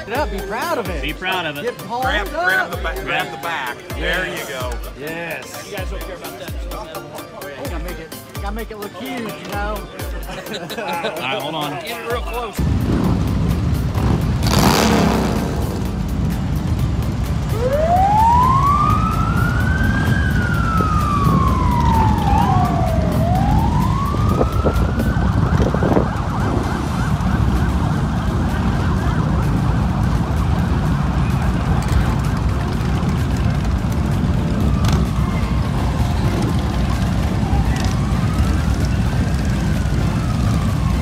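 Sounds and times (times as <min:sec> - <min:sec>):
siren wailing: 0:17.5 - 0:33.4, 0:34.3 - 0:41.0.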